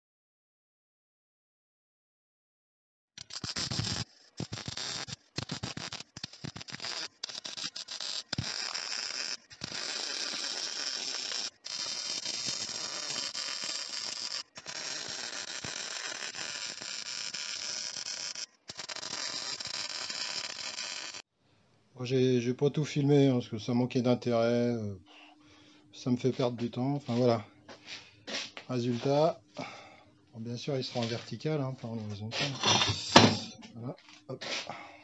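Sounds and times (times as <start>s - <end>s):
welding arc crackling: 3.2s - 21.2s.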